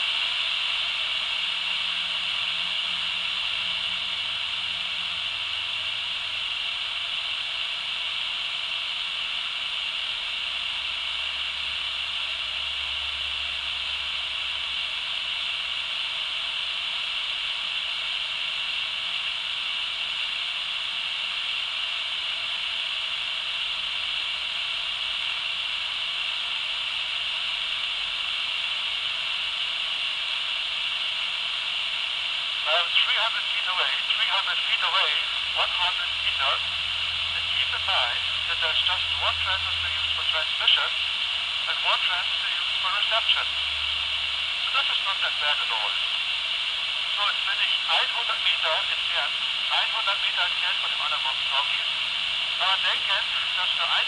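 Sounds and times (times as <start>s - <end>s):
walkie-talkie rushing hiss: 32.5s - 54.0s.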